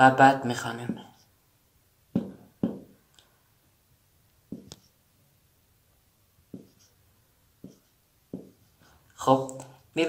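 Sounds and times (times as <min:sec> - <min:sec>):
marker pen on whiteboard: 0:02.1 - 0:03.4, 0:04.3 - 0:05.2, 0:05.9 - 0:10.0.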